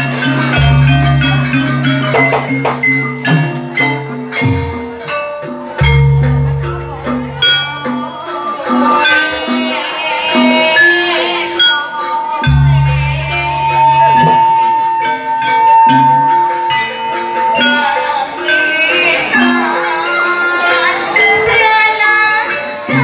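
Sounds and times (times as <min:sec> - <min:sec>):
drum beat: 0:00.0 - 0:07.4
metallophone melody: 0:00.0 - 0:23.0
deep held bass tone: 0:05.8 - 0:07.4, 0:12.4 - 0:14.7.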